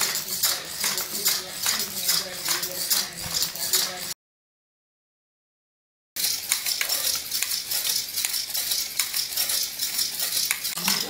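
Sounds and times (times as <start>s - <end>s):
rapid patter of small clicks: 6.2s - 11.0s.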